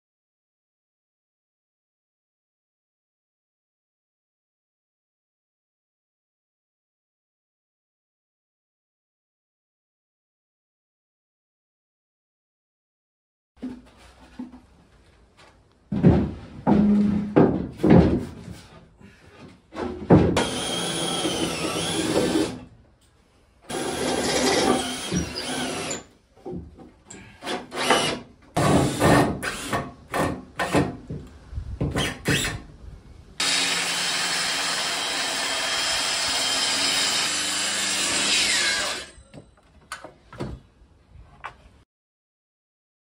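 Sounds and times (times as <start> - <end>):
circular saw cutting plywood: 20.4 - 22.6, 33.4 - 39.2
cordless drill driving screws: 20.4 - 22.6, 23.7 - 26.1, 27.4 - 28.2, 33.4 - 39.2.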